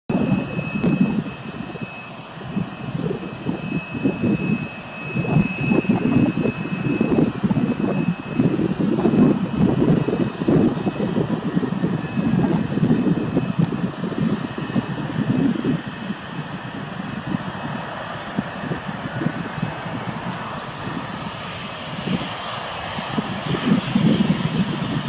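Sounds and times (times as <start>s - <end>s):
jet engines rumbling: 0.1s - 25.0s.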